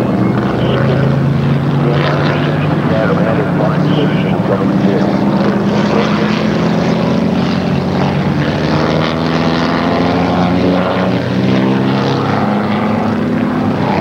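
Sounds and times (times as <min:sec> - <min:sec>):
racing car engines at speed: 0:00.0 - 0:14.0.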